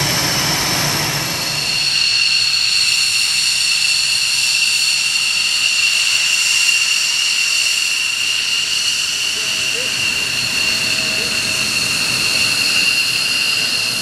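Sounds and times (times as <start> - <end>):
jet engine whining: 0.0 - 14.0.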